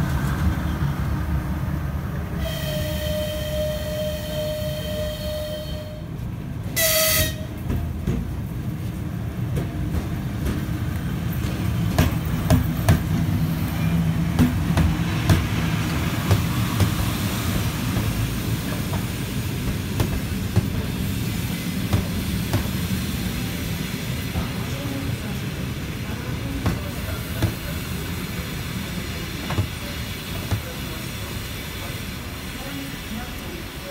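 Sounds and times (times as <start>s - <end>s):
train rolling past rumble: 0.0s - 33.9s
locomotive horn blast: 2.4s - 6.2s, 6.8s - 7.5s.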